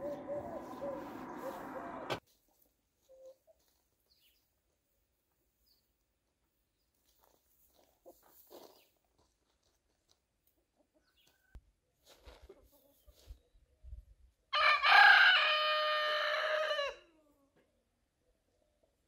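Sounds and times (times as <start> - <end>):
chickens pecking on gravel: 6.9 - 11.4.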